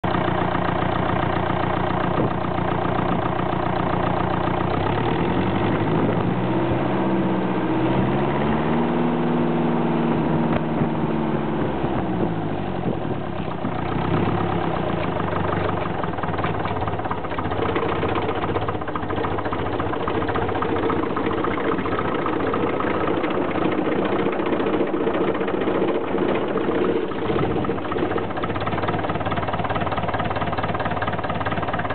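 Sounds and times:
tractor diesel engine idling: 0.0s - 31.9s
engine revving: 4.6s - 30.1s.

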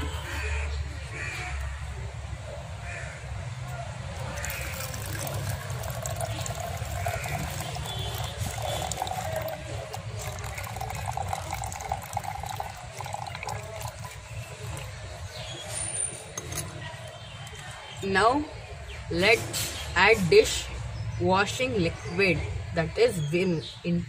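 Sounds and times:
water pouring into plastic bottle: 4.2s - 15.6s.

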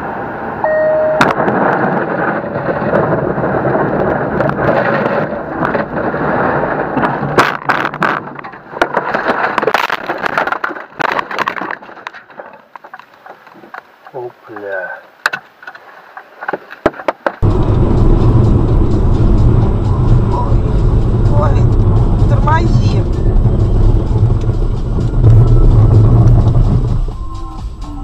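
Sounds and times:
car road and engine noise: 0.0s - 28.0s
short beep: 0.6s - 1.4s.

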